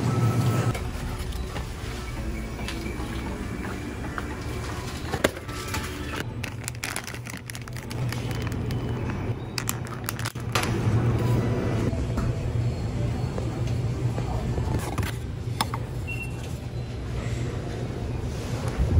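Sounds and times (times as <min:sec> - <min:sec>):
plastic packaging crinkling: 0:06.2 - 0:10.6.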